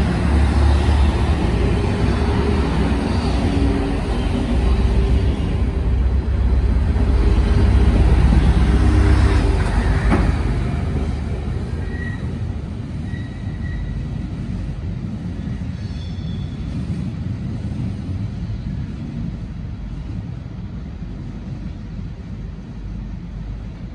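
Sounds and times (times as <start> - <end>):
trains passing: 0.0 - 23.9
faint high squeals: 11.8 - 12.4, 13.0 - 14.0, 15.8 - 16.7.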